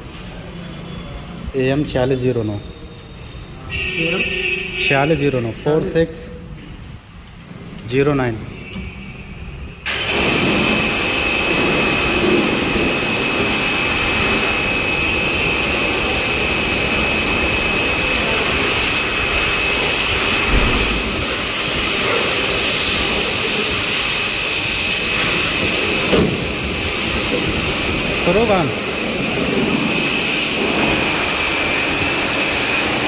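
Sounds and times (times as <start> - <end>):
machine rushing with high whine: 9.8 - 33.0.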